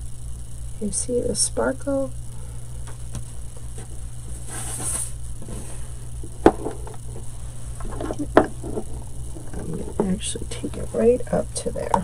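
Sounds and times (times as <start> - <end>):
steady low hum: 0.0 - 12.0
soft rustle of handling: 3.2 - 6.2
lamp knocking on table: 6.4 - 7.0.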